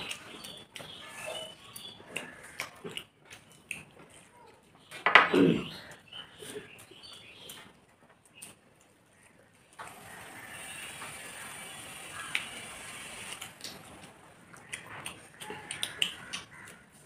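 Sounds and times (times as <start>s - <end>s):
sharp clicks and smacks: 0.0s - 4.3s, 12.2s - 12.6s, 13.3s - 17.0s
chewing: 0.0s - 4.9s, 13.3s - 17.0s
fingers mixing rice on metal plates: 12.2s - 17.0s.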